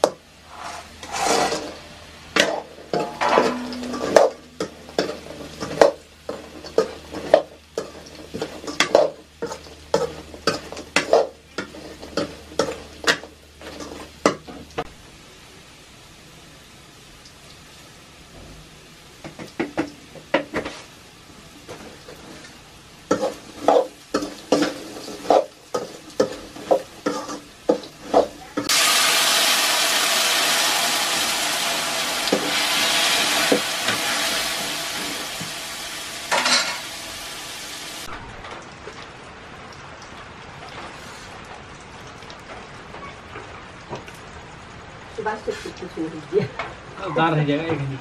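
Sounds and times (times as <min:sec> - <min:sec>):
loud frying sizzle: 0:00.0 - 0:48.0
metal ladle scraping a pan: 0:00.4 - 0:14.5, 0:36.3 - 0:37.0.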